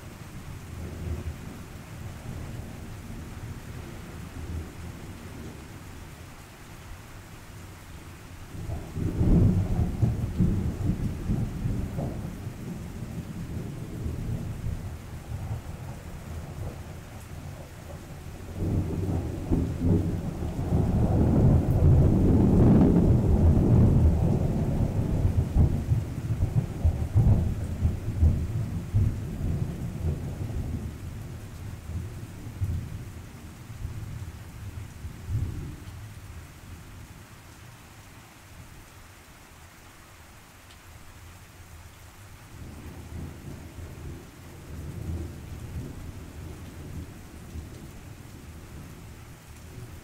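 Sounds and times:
steady rain: 0:00.0 - 0:50.0
rolling thunder: 0:08.6 - 0:33.1.

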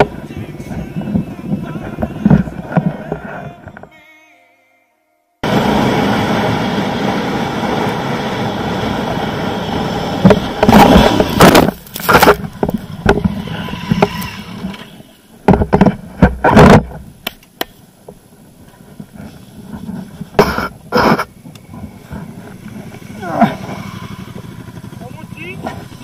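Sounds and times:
wind noise: 0:00.0 - 0:03.9, 0:17.9 - 0:26.0
short bumps: 0:00.0 - 0:04.0, 0:10.2 - 0:26.0
motorcycle engine: 0:05.4 - 0:15.9, 0:18.7 - 0:26.0
motorcycle scraping knocks in sand: 0:10.2 - 0:17.0.

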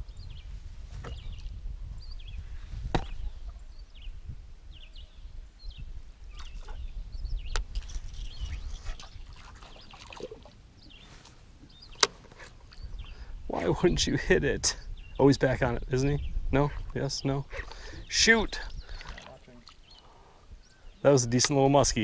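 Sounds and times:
faint bird chirps: 0:00.0 - 0:13.7, 0:17.6 - 0:21.1.

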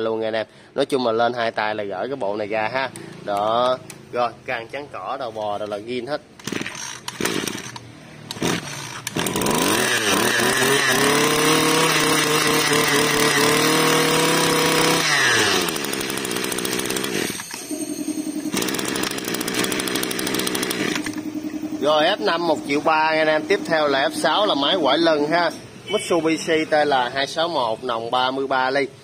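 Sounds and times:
two-stroke engine revving and idling: 0:06.4 - 0:17.8, 0:18.4 - 0:25.5.

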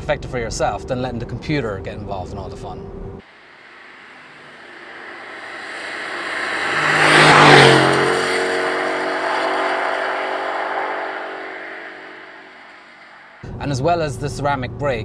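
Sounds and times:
car engine driving past: 0:02.9 - 0:13.6
tyres hissing on wet road: 0:03.2 - 0:13.4.

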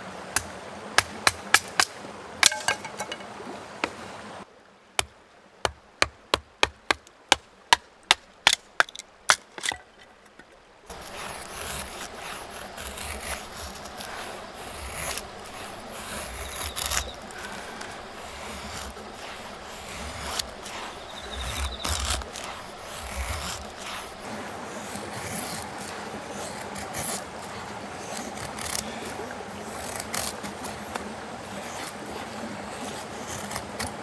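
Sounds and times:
knife scraping wood: 0:08.8 - 0:34.0.

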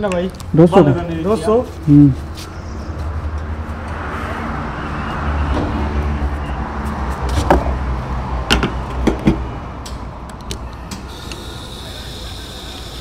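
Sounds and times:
fuel pump humming: 0:10.9 - 0:13.0.

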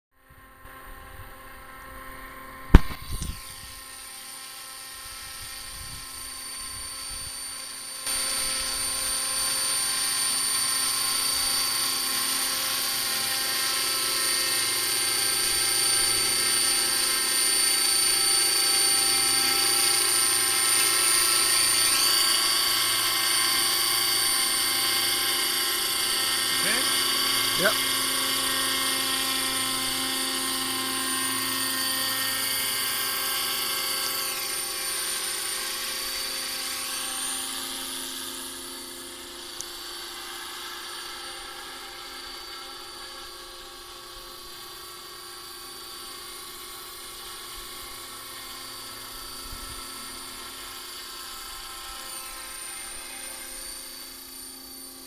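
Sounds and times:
model helicopter whine: 0:00.2 - 0:55.0
sharp click: 0:02.7 - 0:03.4.

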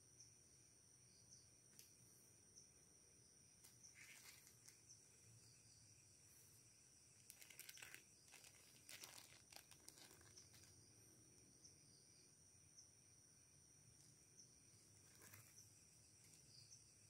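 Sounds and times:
plastic bag crinkling: 0:07.2 - 0:10.8, 0:15.0 - 0:15.6.

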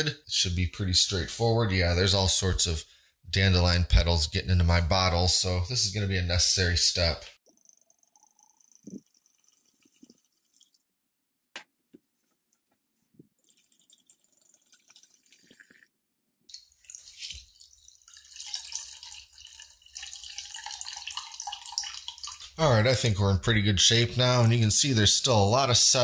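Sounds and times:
liquid trickling into pitcher: 0:07.4 - 0:11.0, 0:13.3 - 0:22.6.

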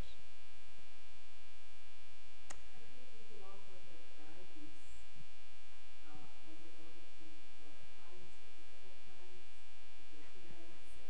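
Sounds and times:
electrical hum: 0:00.0 - 0:11.0
faint person speaking: 0:02.5 - 0:05.1, 0:06.0 - 0:09.5, 0:10.1 - 0:11.0.

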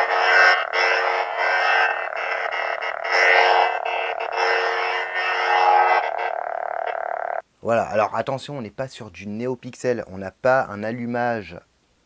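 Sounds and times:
electric blade hum: 0:00.0 - 0:07.4.

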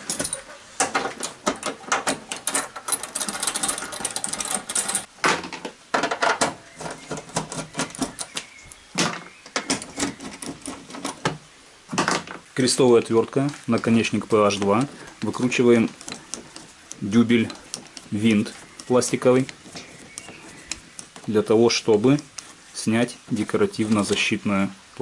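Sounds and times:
rapid ratchet clicking: 0:15.9 - 0:21.3.

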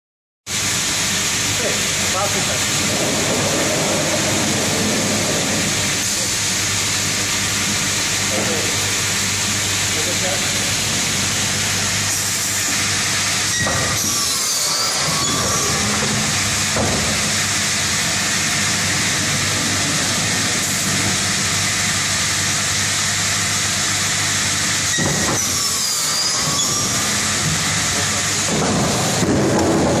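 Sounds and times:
wood saw machine hissing: 0:08.2 - 0:29.9.

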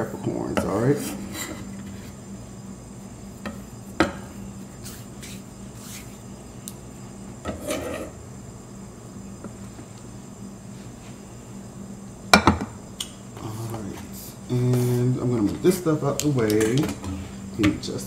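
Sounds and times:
hands rubbing: 0:04.6 - 0:06.2.

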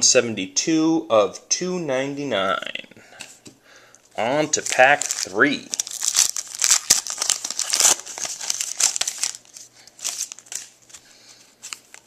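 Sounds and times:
cards rustling and clicking: 0:03.2 - 0:11.0
wrapper tearing and crinkling: 0:04.2 - 0:11.0.

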